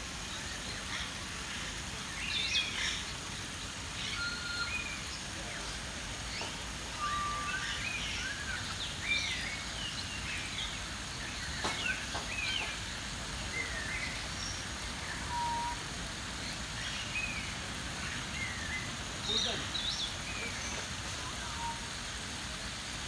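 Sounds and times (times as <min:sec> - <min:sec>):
steady background noise: 0:00.0 - 0:23.0
bird whistles and chirps: 0:04.0 - 0:05.0, 0:07.0 - 0:08.5, 0:15.1 - 0:15.8.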